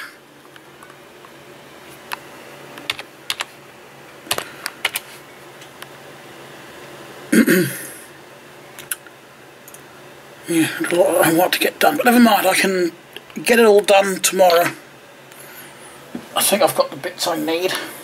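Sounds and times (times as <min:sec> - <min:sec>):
computer keyboard typing: 0:02.8 - 0:03.5, 0:04.3 - 0:05.1.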